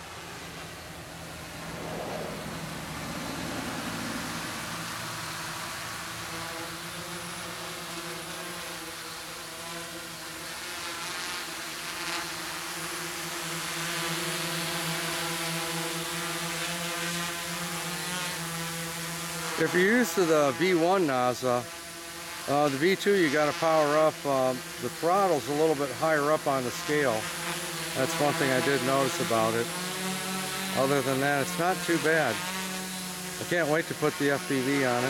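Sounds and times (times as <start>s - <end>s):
drone propeller hum: 0.0s - 10.5s, 21.2s - 35.0s
hiss of rushing air: 1.1s - 5.2s.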